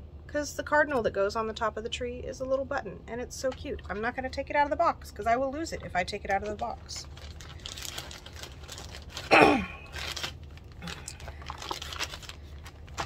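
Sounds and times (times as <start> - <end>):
packaging rustling and crinkling: 5.7 - 13.0.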